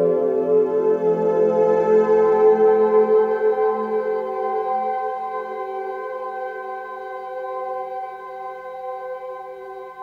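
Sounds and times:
ambient music of held tones: 0.0 - 10.0.

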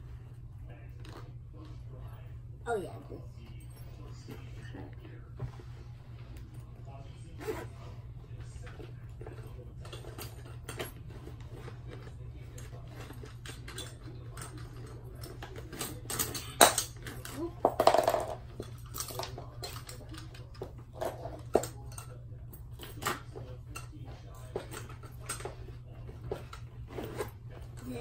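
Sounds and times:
plastic toys clattering: 13.1 - 22.1.

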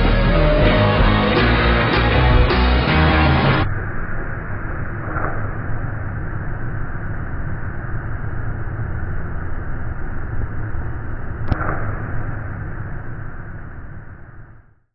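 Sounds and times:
sharp click: 11.4 - 12.0.

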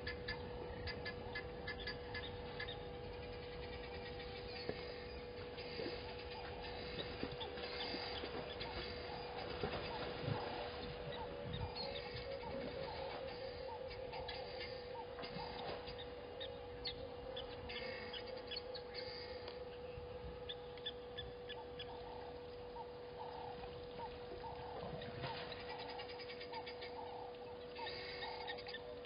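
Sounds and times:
bird hooting calls: 0.0 - 29.0
faint steady hum: 0.0 - 29.0.

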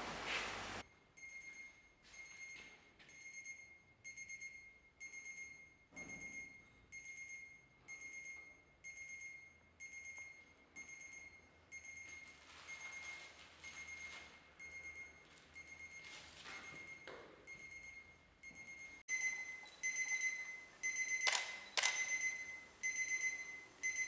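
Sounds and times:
alarm clock beeping: 0.8 - 24.0
sharp clicks: 21.2 - 22.2.

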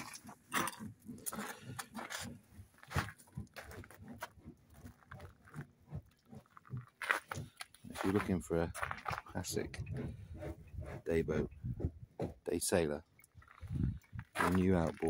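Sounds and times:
footsteps crunching on gravel: 0.0 - 9.4, 13.4 - 15.0.

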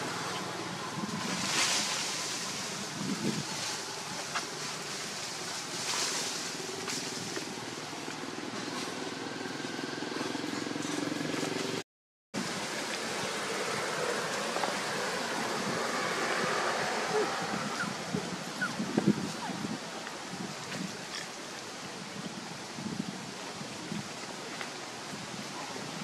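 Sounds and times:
faint distant sounds: 0.0 - 11.8, 12.4 - 26.0
outdoor background hiss: 0.0 - 11.8, 12.4 - 26.0.

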